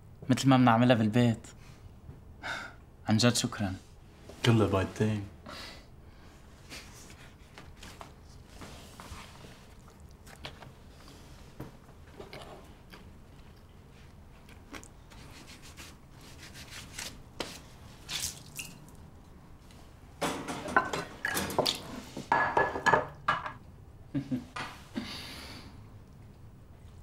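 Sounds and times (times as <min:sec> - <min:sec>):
dishes clattering and clinking: 0:20.2 - 0:23.6.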